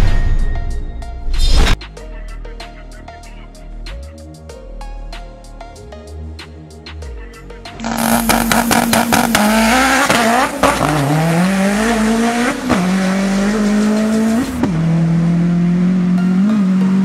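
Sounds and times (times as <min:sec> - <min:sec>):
race car engine at full throttle: 0:07.8 - 0:17.0.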